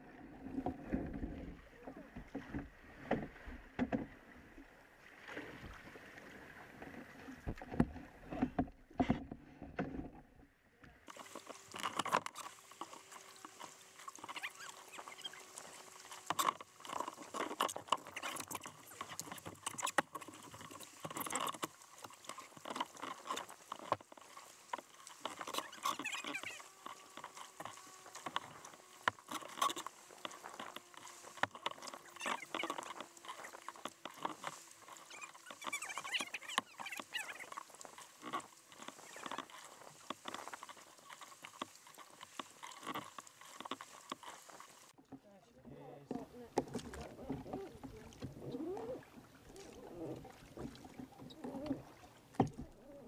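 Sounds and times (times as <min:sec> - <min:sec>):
small water splashes: 0:00.0 - 0:09.2, 0:11.0 - 0:53.0
water dripping off paddles: 0:11.1 - 0:45.2, 0:45.9 - 0:53.0.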